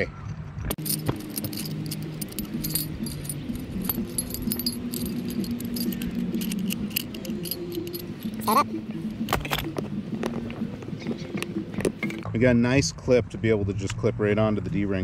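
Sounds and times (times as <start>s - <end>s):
metal anchor flukes clinking: 0.7s - 10.4s.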